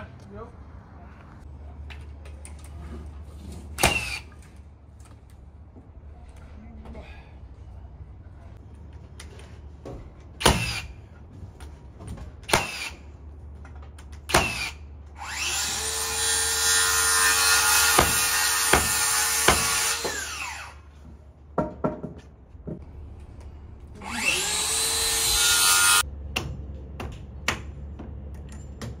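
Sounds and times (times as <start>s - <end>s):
nail gun firing: 3.8s - 4.3s, 10.4s - 10.9s, 12.5s - 13.0s, 14.3s - 14.8s.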